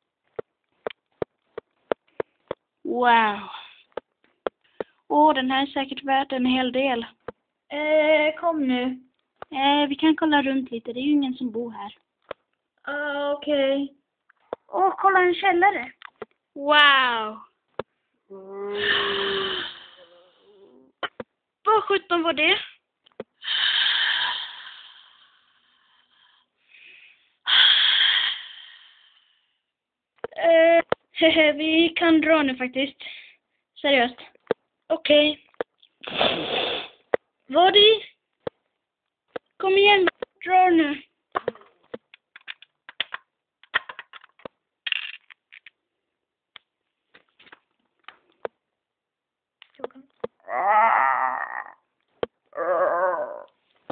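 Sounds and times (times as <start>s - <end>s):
breathy hissing monster voice: 18.6s - 20.9s
faint breath: 23.4s - 29.7s, 33.0s - 33.7s
small object clattering on hard surface: 42.3s - 45.8s.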